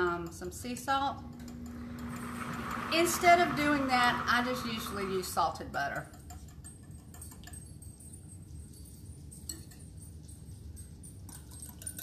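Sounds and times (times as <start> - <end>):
whisk clinking against glass bowl: 3.0 - 8.6, 9.3 - 12.0.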